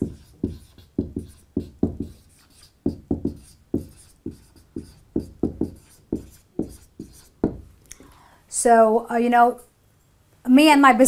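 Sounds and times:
marker pen writing on whiteboard: 0.0 - 7.8.

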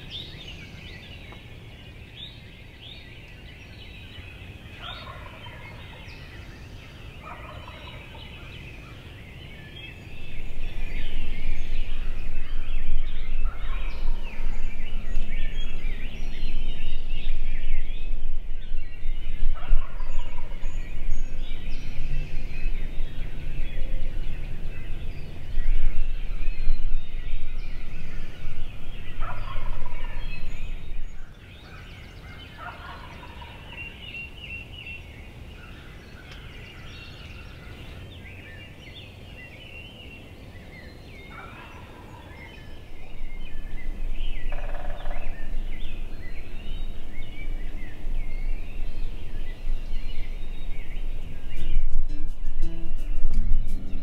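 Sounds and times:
songbirds chirping: 0.0 - 54.0
turkey gobbling: 4.8 - 6.0, 7.2 - 8.1, 19.6 - 20.4, 29.2 - 30.2, 32.6 - 33.6.

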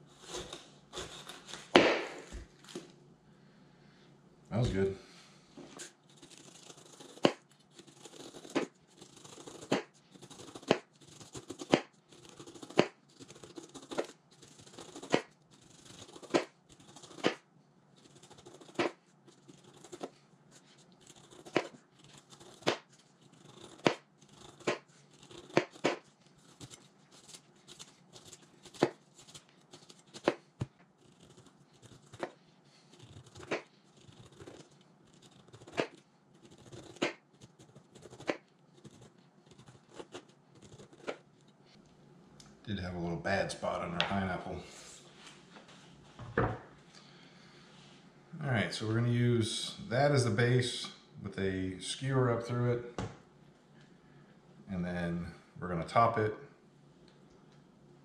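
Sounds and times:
knife slicing pineapple rind: 5.8 - 17.4, 18.0 - 41.3.

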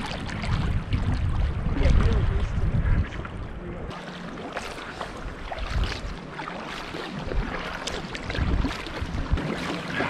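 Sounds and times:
paddle strokes splashing: 0.0 - 10.0
wind rumbling on microphone: 0.0 - 10.0.

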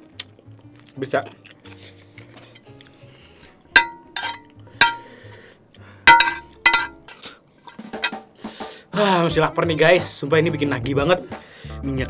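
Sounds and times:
metal spoon clinking on plate: 3.8 - 5.1, 6.1 - 7.2.

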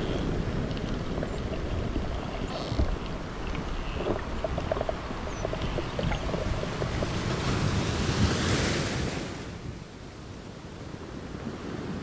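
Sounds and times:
underwater rush of water: 0.0 - 9.7
faint scattered clicks: 0.6 - 7.2.

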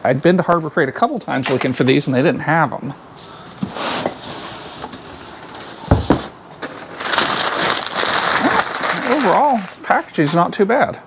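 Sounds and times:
cardboard rustling: 3.5 - 10.0.

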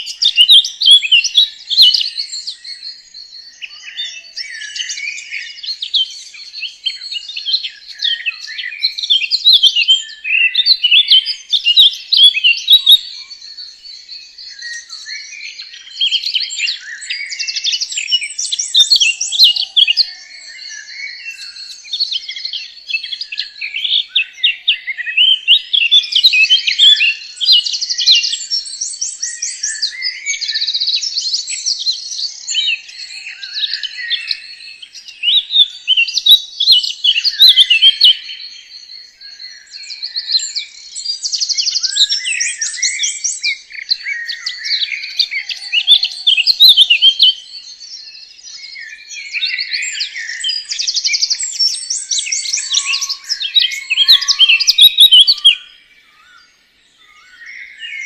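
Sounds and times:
songbirds chirping and trilling: 0.0 - 58.0.

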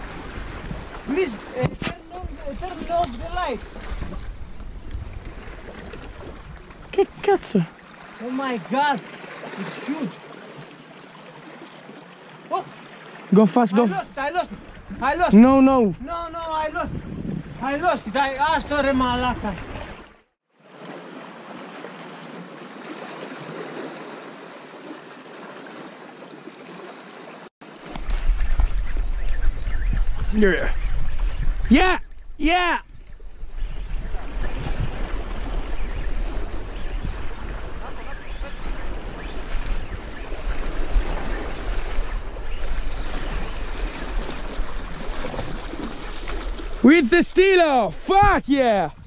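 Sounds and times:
wind buffeting microphone: 0.0 - 7.4, 14.4 - 20.0, 27.8 - 47.3
small waves lapping on rocks: 0.0 - 13.4, 39.6 - 47.0.

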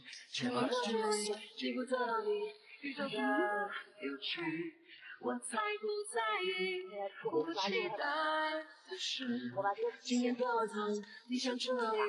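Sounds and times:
high female voice singing: 0.0 - 12.0.

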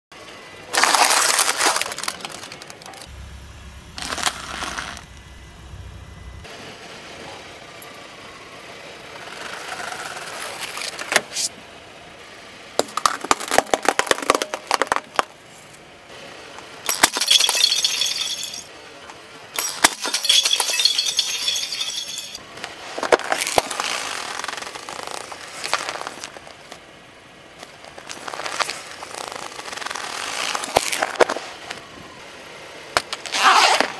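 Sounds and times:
tyre crushing plastic cups: 0.7 - 3.1, 12.8 - 15.3.

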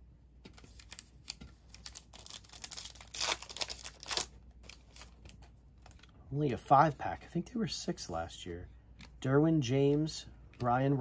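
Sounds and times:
foil wrapper crinkling and tearing: 0.7 - 5.2.

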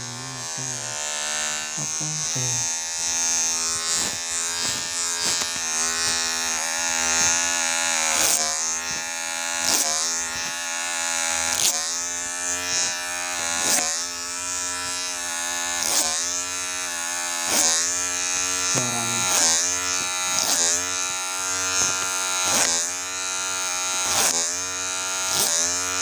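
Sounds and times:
clipper blades rasping through hair: 0.0 - 26.0
electric hair clipper buzzing: 0.0 - 26.0.

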